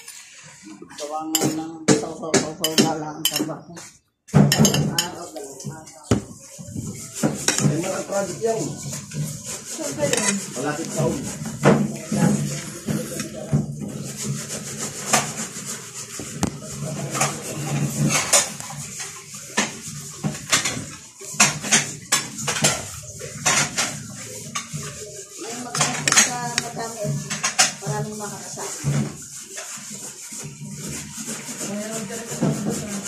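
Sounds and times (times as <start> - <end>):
cutlery clinking on ceramic plate: 1.3 - 3.5, 4.4 - 5.7.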